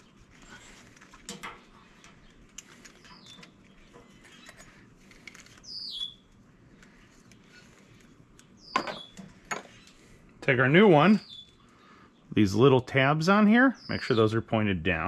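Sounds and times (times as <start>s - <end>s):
bird chirping: 1.6s - 4.8s, 5.5s - 6.3s, 8.4s - 10.1s, 10.8s - 12.7s, 13.3s - 14.4s.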